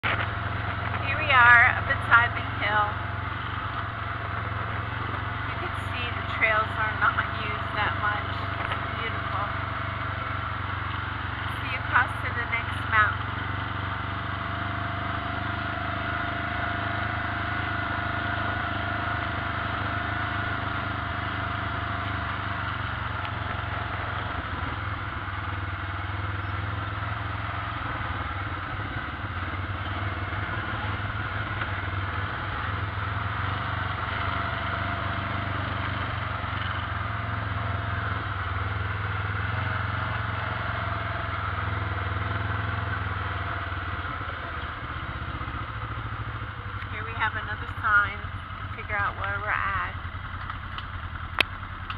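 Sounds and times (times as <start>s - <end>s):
vehicle engine running: 0.0s - 51.9s.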